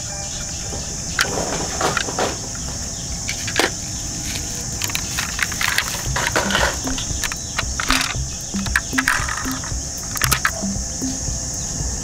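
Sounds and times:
high-pitched hiss: 0.0s - 12.0s
plastic toy vehicles clicking: 1.1s - 10.7s.

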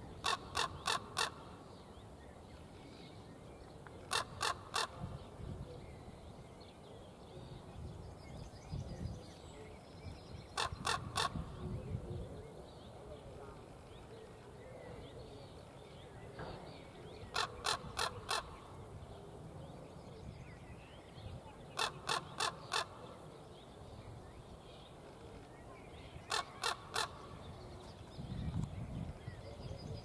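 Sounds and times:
raven harsh calls: 0.2s - 1.6s, 4.0s - 5.0s, 17.3s - 18.6s, 21.8s - 23.0s, 26.3s - 27.3s.

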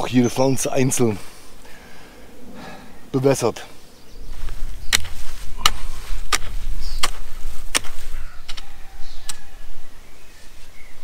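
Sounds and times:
hoe chopping into soil: 4.9s - 9.4s.

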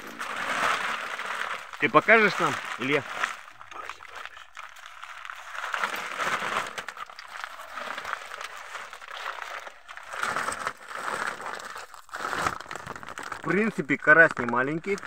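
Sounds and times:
plastic sack rustling and crinkling: 0.0s - 15.0s.

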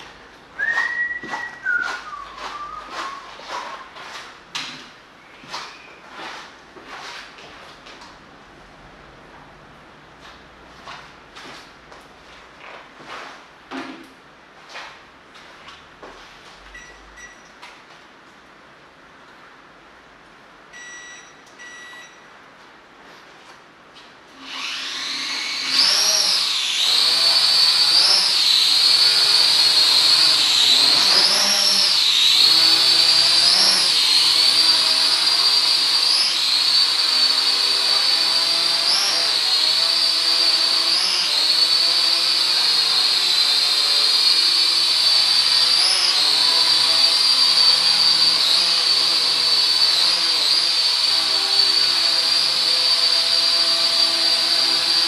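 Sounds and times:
toy drone propellers whining: 24.4s - 50.8s.

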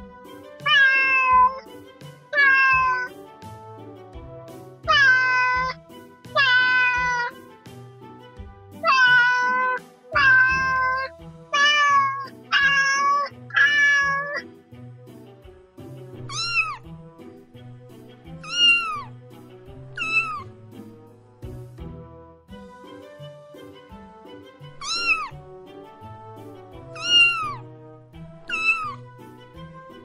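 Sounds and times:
background music: 0.0s - 30.0s
cat meowing: 0.6s - 1.7s, 2.3s - 3.2s, 4.8s - 7.4s, 8.8s - 14.4s, 16.3s - 16.9s, 18.4s - 19.1s, 20.0s - 20.5s, 24.8s - 25.4s, 26.9s - 27.6s, 28.4s - 29.1s.

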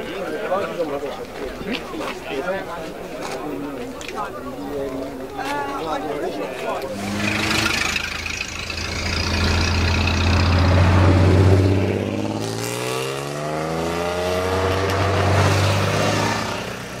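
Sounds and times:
car engines driving past: 6.8s - 17.0s
engine accelerating: 6.9s - 17.0s.

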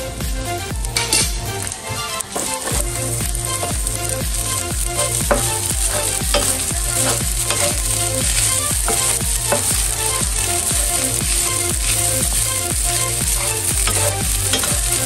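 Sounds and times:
background music with beat: 0.0s - 15.0s
rice sizzling in a pan: 0.9s - 15.0s
wooden spatula scraping a pan: 1.8s - 15.0s.

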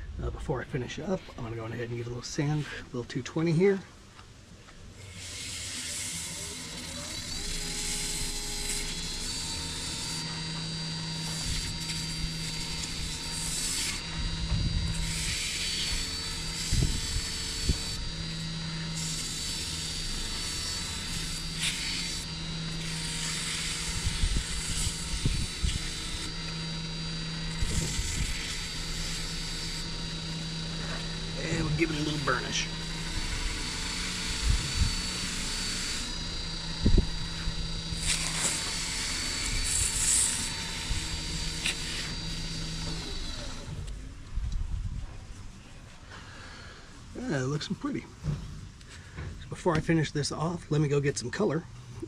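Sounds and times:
lathe motor humming and whining: 0.0s - 49.9s
sandpaper hissing on wood: 5.0s - 14.2s, 14.9s - 36.2s, 38.0s - 43.5s.

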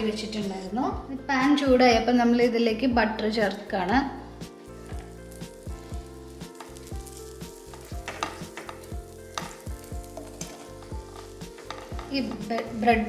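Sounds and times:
butter sizzling in a frying pan: 4.4s - 13.0s
spatula scraping a pan: 6.6s - 12.8s.

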